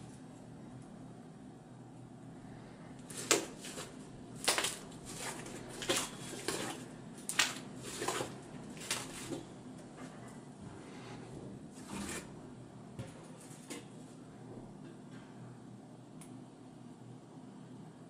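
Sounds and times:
slime squelching: 3.0 - 10.2.

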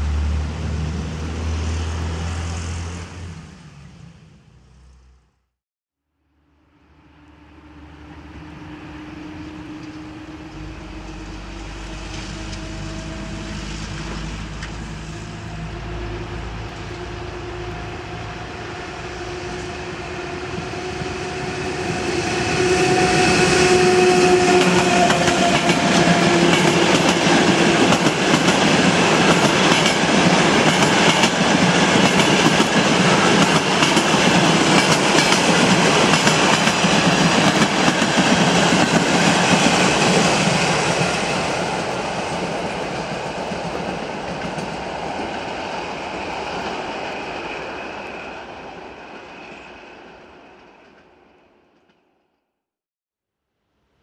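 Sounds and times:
electric locomotive hum: 6.6 - 49.8
train wheels clattering on rails: 24.4 - 48.0.

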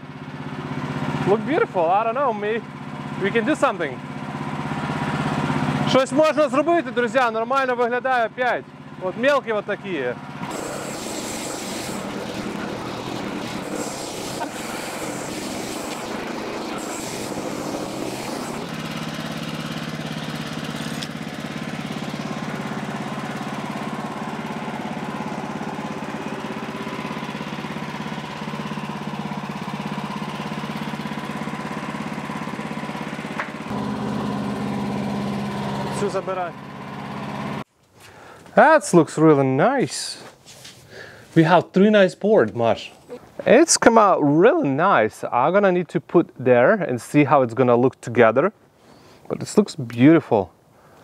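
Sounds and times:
gas engine running: 0.0 - 38.8
band saw cutting log: 0.4 - 37.6.

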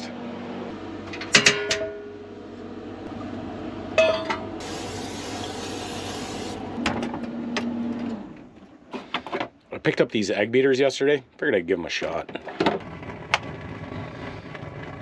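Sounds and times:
cooking spray hissing: 4.6 - 6.7.

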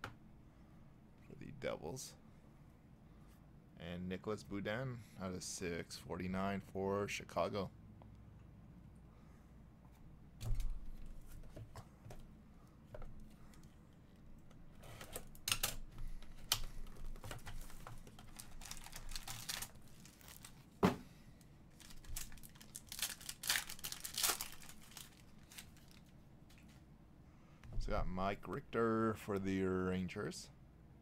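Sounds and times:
plastic wrapper crinkling and tearing: 17.6 - 20.7, 21.7 - 26.1.

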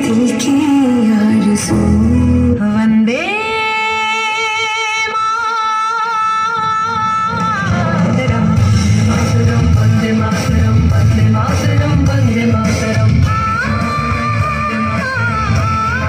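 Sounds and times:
band playing steady beat: 7.1 - 16.0.

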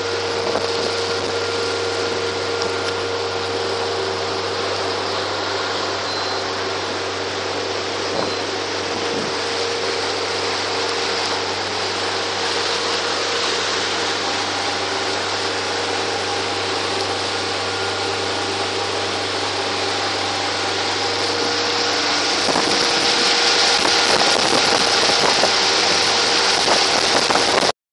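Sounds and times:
outboard motor running: 0.0 - 27.7
water rushing: 0.0 - 27.7
wind on microphone: 8.0 - 10.0, 21.0 - 27.7.

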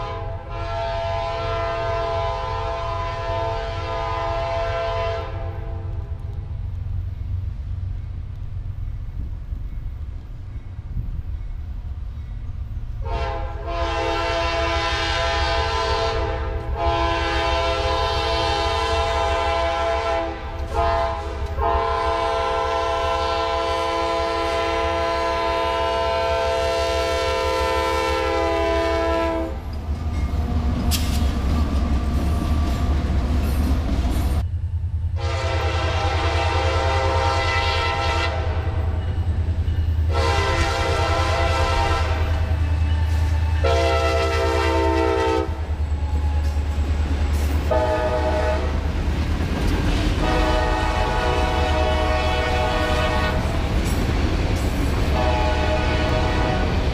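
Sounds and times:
locomotive horn blasts: 0.0 - 6.1, 13.0 - 29.7, 35.2 - 39.2, 40.1 - 46.5, 47.6 - 48.8, 50.2 - 53.6, 55.0 - 56.9
diesel engines and wheels rumbling: 24.8 - 56.9.

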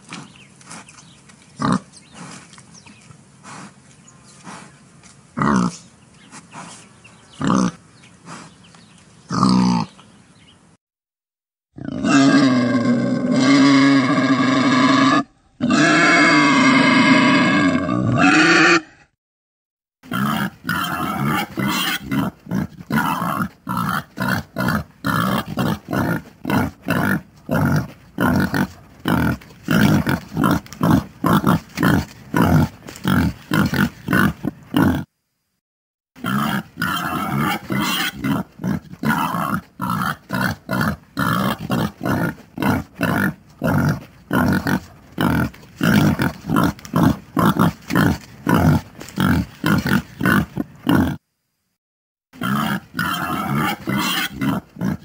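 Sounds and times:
wild boar grunting: 1.6 - 2.6, 5.4 - 8.6, 9.3 - 10.0, 20.0 - 35.1, 36.2 - 51.2, 52.4 - 55.0.

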